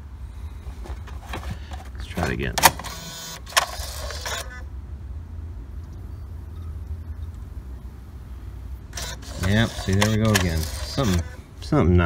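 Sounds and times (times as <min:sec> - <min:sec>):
steady low hum: 0:00.0 - 0:12.0
sliding mechanism noise: 0:00.6 - 0:04.6, 0:08.9 - 0:11.4
cd changer click: 0:09.0 - 0:11.3.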